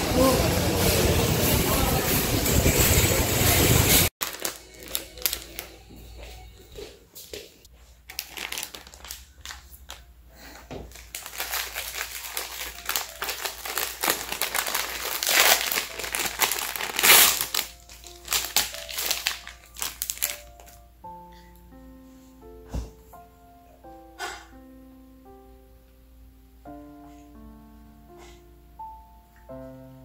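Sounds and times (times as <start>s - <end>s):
packet crinkling and rustling: 4.2s - 5.9s, 8.0s - 10.1s, 10.8s - 20.8s.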